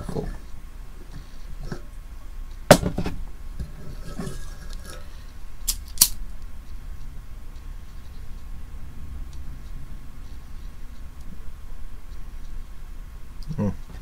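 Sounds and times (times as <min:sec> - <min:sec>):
hard objects knocking on table: 0:02.7 - 0:03.2.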